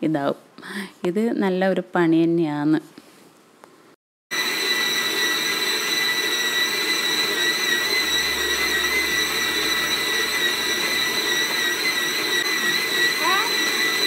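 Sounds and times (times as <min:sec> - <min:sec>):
stand mixer motor whining: 0:04.3 - 0:14.0.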